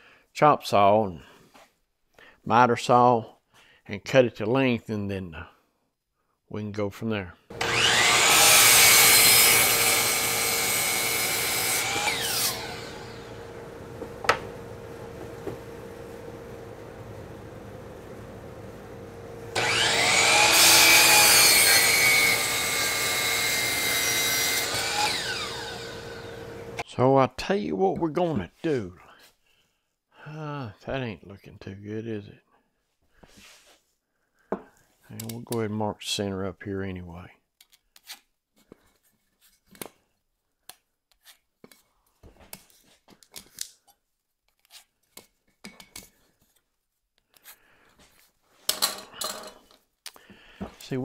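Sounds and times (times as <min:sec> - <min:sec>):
saw blade cutting wood: 0:07.5 - 0:14.6, 0:19.5 - 0:26.8
miter saw motor whining: 0:07.5 - 0:15.6, 0:19.2 - 0:26.8.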